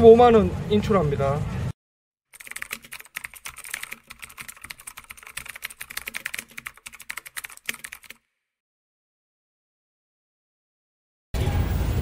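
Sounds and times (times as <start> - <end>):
rapid keyboard typing: 2.3 - 8.2.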